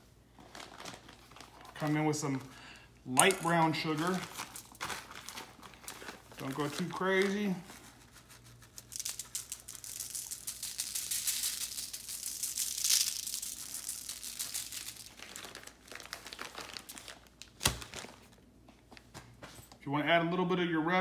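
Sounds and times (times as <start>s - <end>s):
sugar granules ticking on foil: 8.4s - 16.9s.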